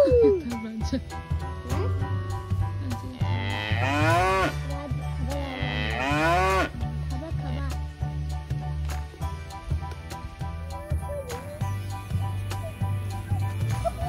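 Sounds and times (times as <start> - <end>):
background music with a beat: 0.0 - 14.0
cow mooing: 3.2 - 4.6, 5.5 - 6.8.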